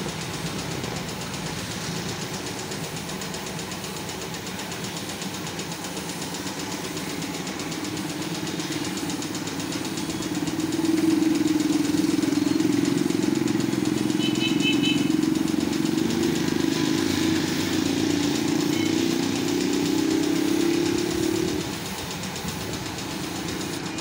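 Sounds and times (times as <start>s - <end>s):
motor hum: 0.0s - 24.0s
spray gun hissing: 0.0s - 24.0s.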